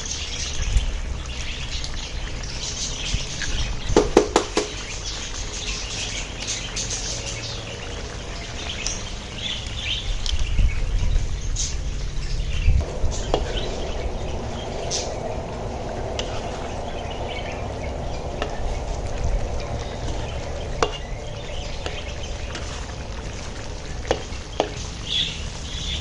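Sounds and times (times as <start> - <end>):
birds chirping faintly: 0.0 - 26.0
food sizzling in a wok: 12.8 - 26.0.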